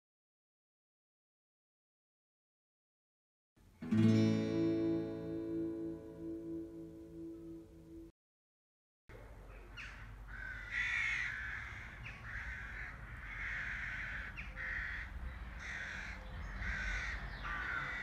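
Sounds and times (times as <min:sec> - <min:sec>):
crows cawing: 0:09.7 - 0:18.0.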